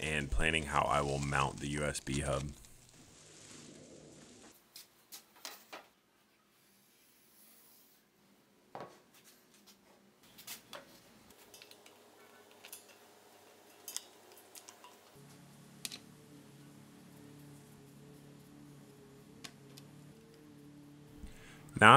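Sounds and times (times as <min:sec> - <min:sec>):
plastic wrap rustling: 0:00.3 - 0:04.5.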